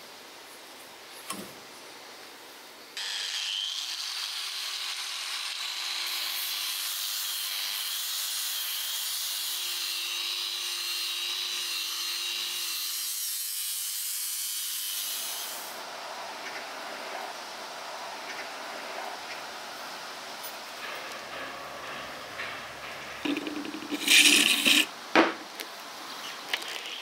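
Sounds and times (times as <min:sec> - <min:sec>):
angle grinder grinding steel: 0:03.0 - 0:15.4, 0:20.8 - 0:24.9.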